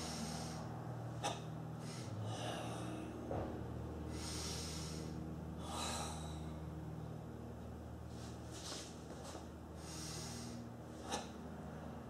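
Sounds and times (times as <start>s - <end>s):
forceful hissing breaths: 0.0s - 3.1s, 4.1s - 6.5s, 9.8s - 11.4s
steady low hum: 0.0s - 12.0s.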